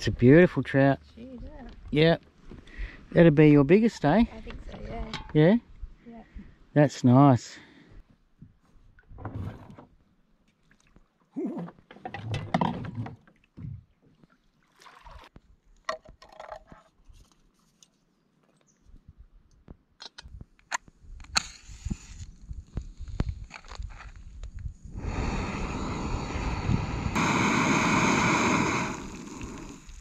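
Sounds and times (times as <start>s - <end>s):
gas stove hiss: 24.8s - 30.0s.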